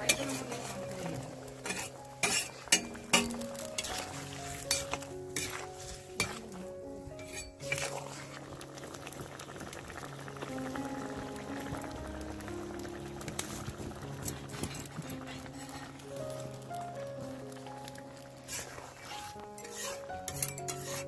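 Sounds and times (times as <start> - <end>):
spatula clinking and scraping metal: 0.0 - 8.4, 14.2 - 16.0, 18.4 - 21.0
gravy bubbling and sizzling: 0.0 - 21.0.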